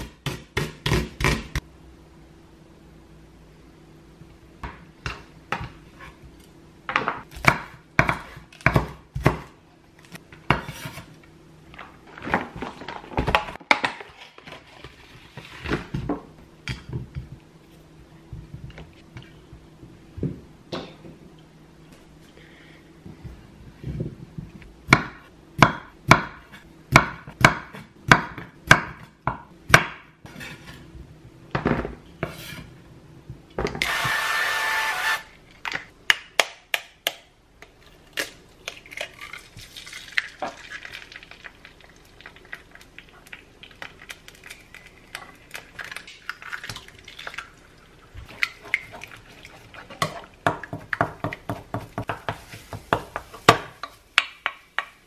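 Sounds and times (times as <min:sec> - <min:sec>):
stirring scraping: 0:48.2 - 0:53.4.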